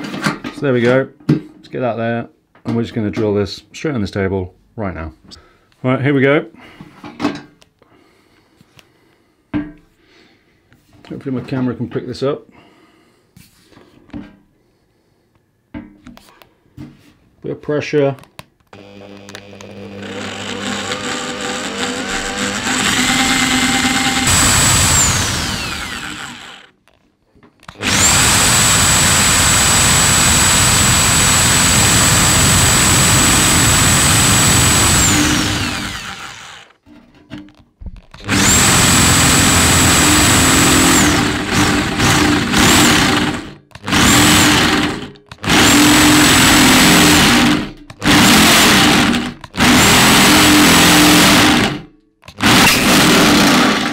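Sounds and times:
electric drill boring metal: 18.7s - 26.7s, 27.7s - 36.8s, 38.2s - 53.9s.

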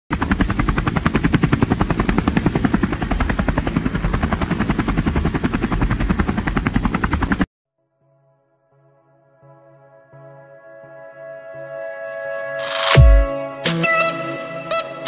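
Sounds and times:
helicopter rotor chopping: 0.1s - 7.5s.

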